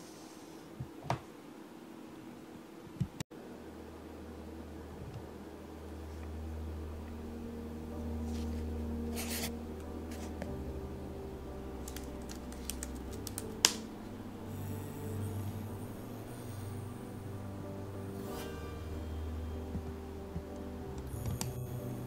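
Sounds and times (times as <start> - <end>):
marker scraping on paper: 8.3 - 9.5.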